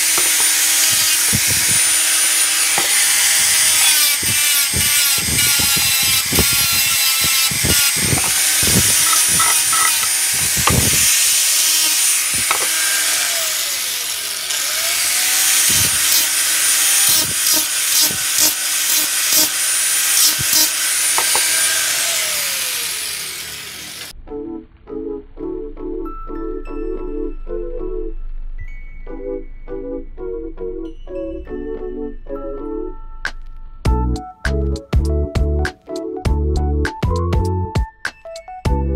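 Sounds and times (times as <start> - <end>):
electric grinder whining: 0.0 - 24.2.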